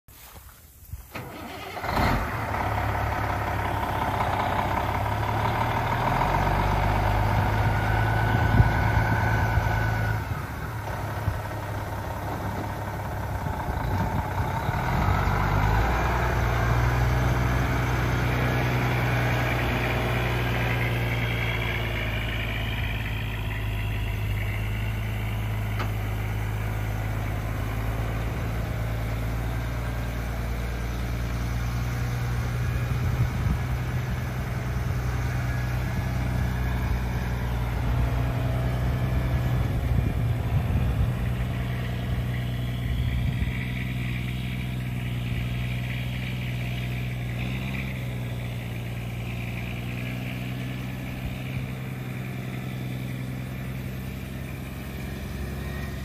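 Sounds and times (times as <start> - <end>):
diesel truck engine starting and idling: 0.8 - 56.0.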